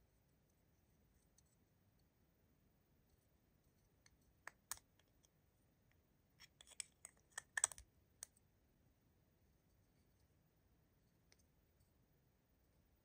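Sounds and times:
hard plastic clicks: 0:06.6 - 0:07.8.

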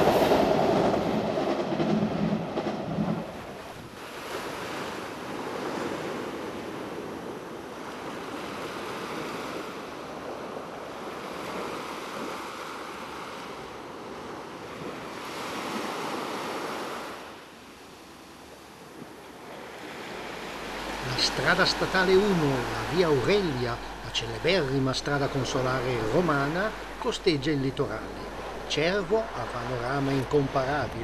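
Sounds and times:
waves washing on rocks: 0:00.0 - 0:01.8, 0:18.7 - 0:31.0.

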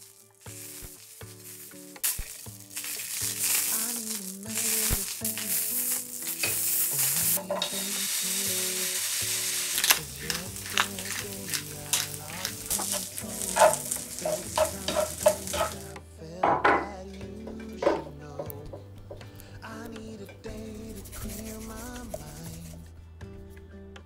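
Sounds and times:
food sizzling in a frying pan: 0:00.0 - 0:16.0
utensil knocking and scraping pan: 0:07.4 - 0:07.9, 0:09.8 - 0:16.9
spoon scraping bread: 0:09.8 - 0:15.9.

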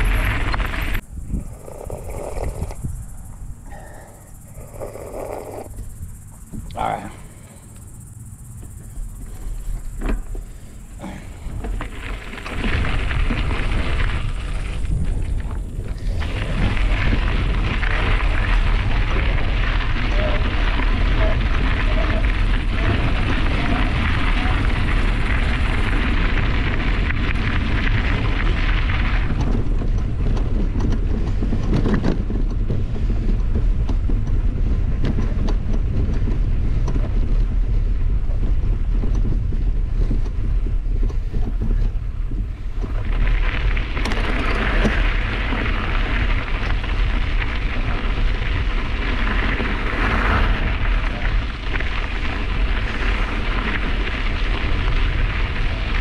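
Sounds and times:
bike tyres crunching on gravel: 0:00.0 - 0:56.0
wind buffeting microphone: 0:00.0 - 0:56.0.

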